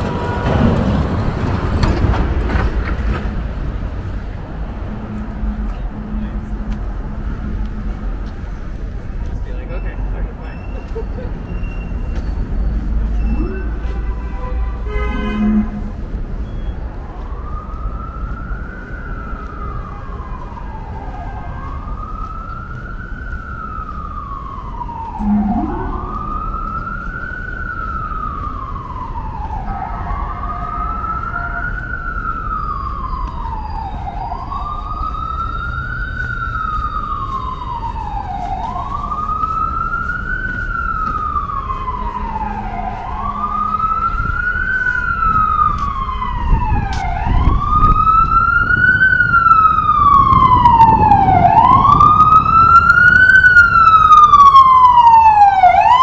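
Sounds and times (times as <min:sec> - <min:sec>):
street traffic rumble: 0:00.0 - 0:56.0
siren wailing: 0:03.1 - 0:56.0
faster siren pattern: 0:04.4 - 0:08.8, 0:12.0 - 0:14.2, 0:15.3 - 0:16.0, 0:17.0 - 0:56.0
short low rising blast: 0:24.9 - 0:28.2.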